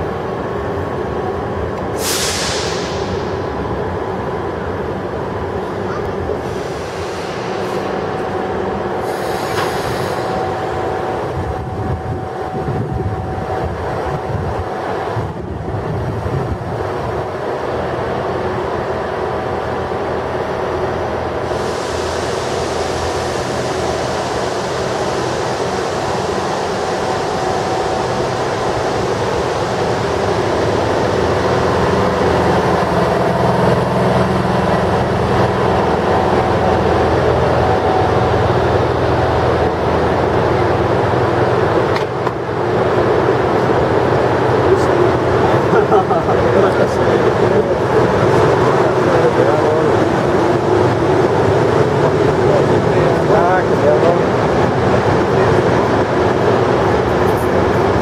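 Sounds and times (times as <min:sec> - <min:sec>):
electric locomotive humming: 0:00.0 - 0:58.0
high hiss: 0:02.0 - 0:03.6.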